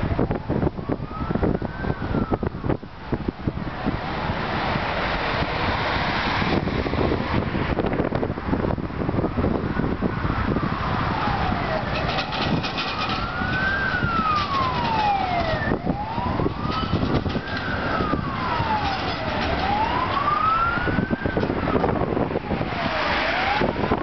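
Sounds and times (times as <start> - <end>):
emergency vehicle siren wailing: 0.0 - 24.0
street traffic noise: 0.0 - 24.0
tram passing: 3.7 - 7.6, 11.7 - 22.1.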